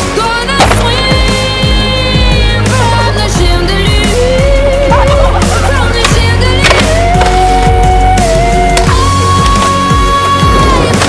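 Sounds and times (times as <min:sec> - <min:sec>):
skateboard clacking on landing: 0:05.9 - 0:07.9.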